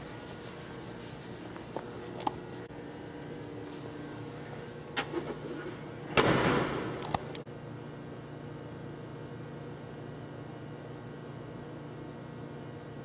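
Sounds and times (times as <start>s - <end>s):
steady hum: 0.0s - 13.0s
car trunk lid slamming: 6.1s - 7.0s.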